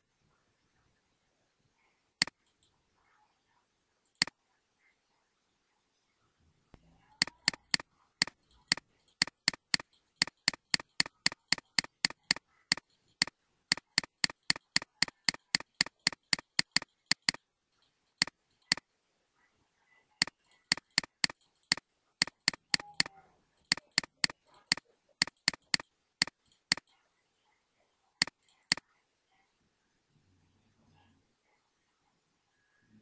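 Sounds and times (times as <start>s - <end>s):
mouse button clicking: 7.2s - 17.4s, 20.2s - 26.9s.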